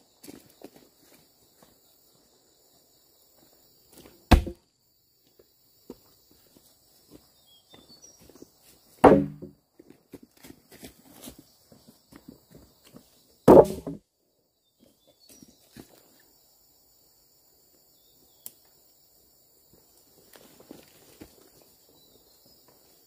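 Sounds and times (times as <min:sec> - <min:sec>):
heavy chopping strikes: 0:04.3 - 0:04.6, 0:09.0 - 0:09.6, 0:13.5 - 0:14.0.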